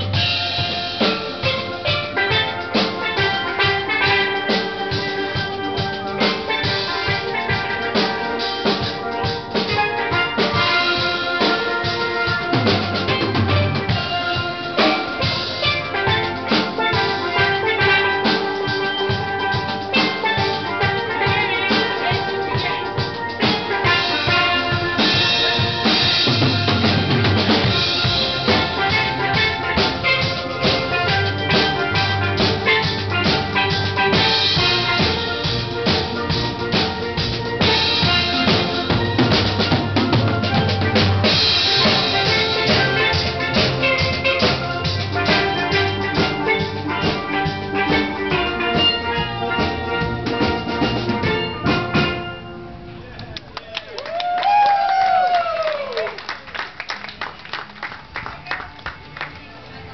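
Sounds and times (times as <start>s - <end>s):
drum kit beat: 0.0s - 52.7s
steel pan notes: 0.0s - 53.1s.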